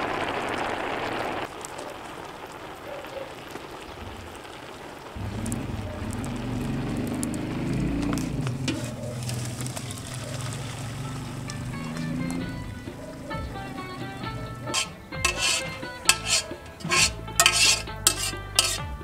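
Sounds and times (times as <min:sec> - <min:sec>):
pot boiling hard: 0:00.0 - 0:19.0
background music with low tones: 0:11.0 - 0:19.0.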